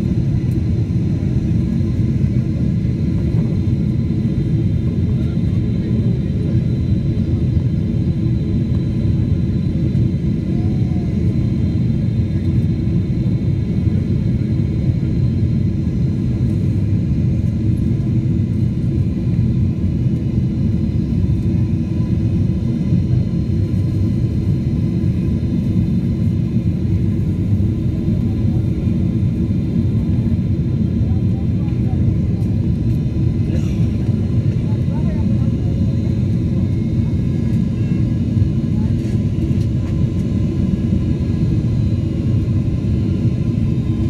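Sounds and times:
airliner engines rumbling: 0.0 - 44.0.

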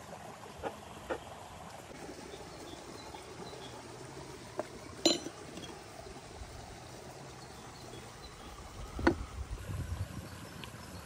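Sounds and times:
faint outdoor background: 0.0 - 11.0
kitchenware clinking: 5.0 - 5.4.

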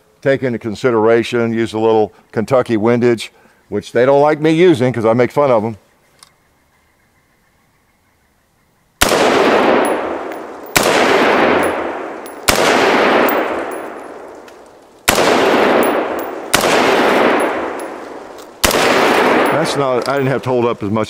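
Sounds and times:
rifle shots with long echo: 9.0 - 20.4.

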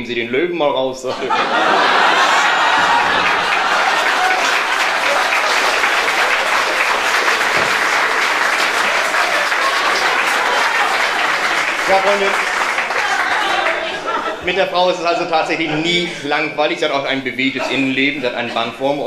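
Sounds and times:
audience applauding: 1.4 - 14.4.

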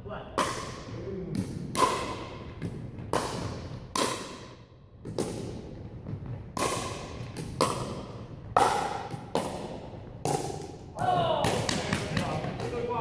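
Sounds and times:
paddles striking plastic ball: 1.4 - 10.8.

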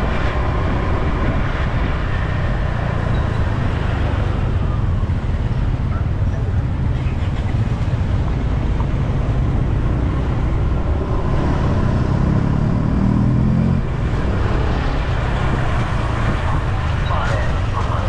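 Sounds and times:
traffic noise: 0.0 - 18.0
wind rumble on microphone: 0.0 - 18.0
engine revving: 9.2 - 18.0.

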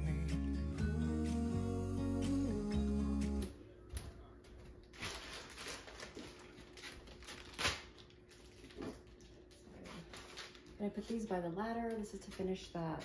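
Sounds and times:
background music: 0.0 - 3.5.

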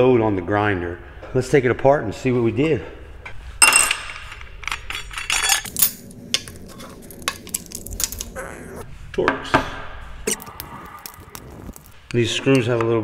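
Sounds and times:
metal tools clattering on steel table: 3.6 - 8.2.

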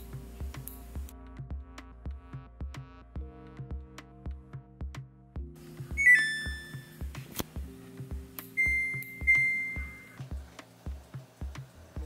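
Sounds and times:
electronic music with steady beat: 0.0 - 12.0
falling chime: 6.0 - 6.9, 8.6 - 10.2
long high beep: 6.0 - 6.9, 8.6 - 10.2.

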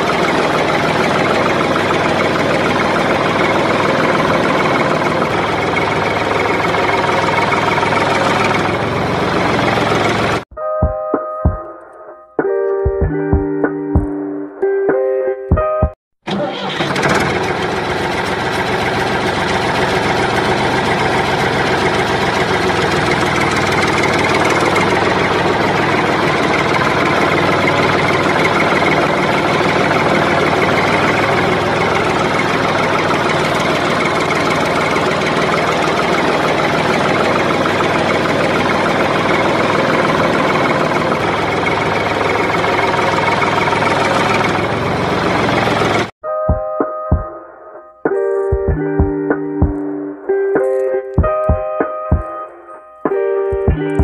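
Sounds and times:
engine idling: 0.0 - 10.5, 16.2 - 46.2.

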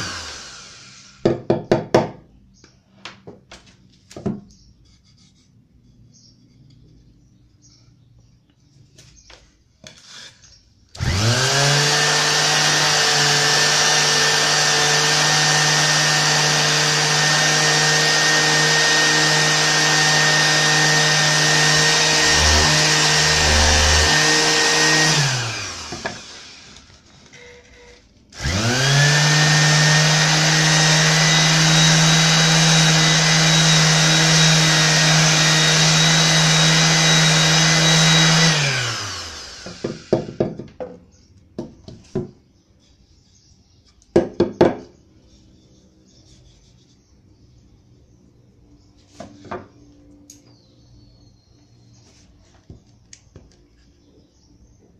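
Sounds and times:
orbital sander motor whine: 0.0 - 1.2, 11.0 - 27.8, 28.4 - 40.4.

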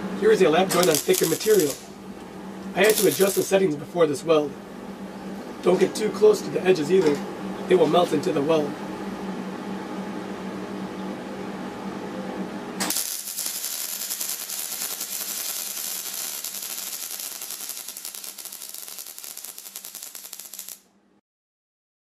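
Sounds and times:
steady hum: 0.0 - 21.2
welding arc crackling: 0.7 - 2.0, 2.8 - 3.6, 12.8 - 20.8.

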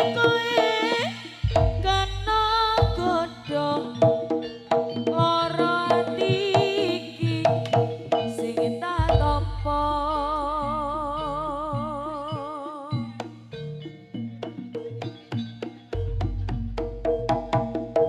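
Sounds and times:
hand drum strokes: 0.0 - 11.3
deep low drum stroke: 1.4 - 3.4, 9.0 - 9.9
melody line: 8.0 - 18.0.

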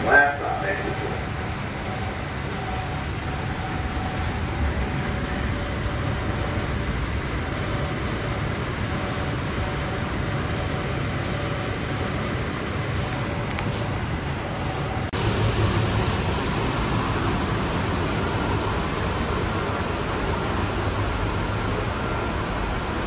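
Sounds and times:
train rumble and hiss: 0.0 - 2.8, 15.2 - 23.0
high-pitched whine: 0.0 - 23.0.

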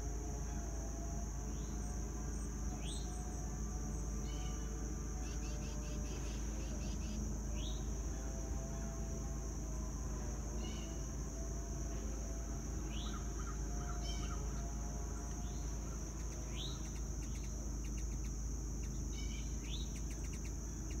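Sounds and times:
insects droning: 0.0 - 21.0
bird chirps: 15.4 - 21.0.

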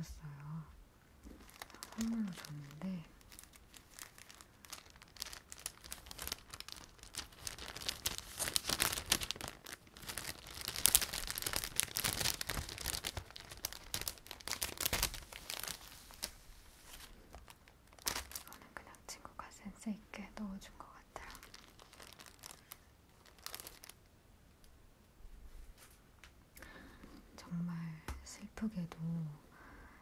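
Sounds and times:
plastic packaging crinkling: 1.2 - 19.5, 20.8 - 24.1.

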